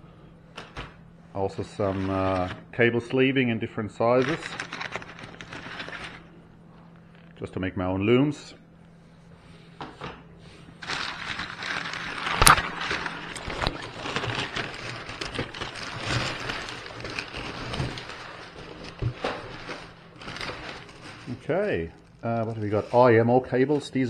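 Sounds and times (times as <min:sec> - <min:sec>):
packing paper crackling and rustling: 0:01.5 - 0:02.6, 0:04.0 - 0:06.4, 0:10.7 - 0:24.0
paper snap: 0:10.9 - 0:16.4.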